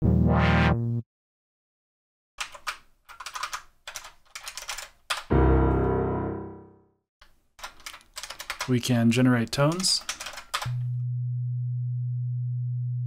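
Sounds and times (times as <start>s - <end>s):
computer keyboard typing: 2.4s - 5.3s, 7.6s - 8.7s, 9.6s - 10.7s
piano note ringing: 5.3s - 6.8s.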